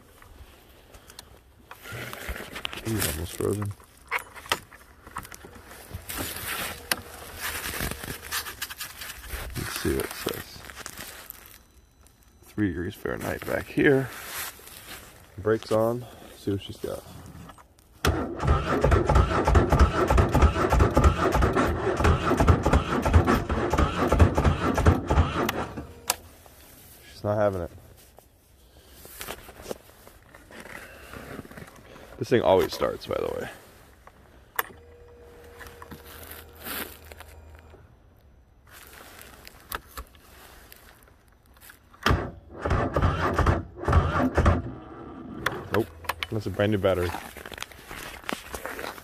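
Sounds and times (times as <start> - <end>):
engine cranking with starter whine: 6.1 - 8.4, 18.0 - 26.2, 42.0 - 46.4.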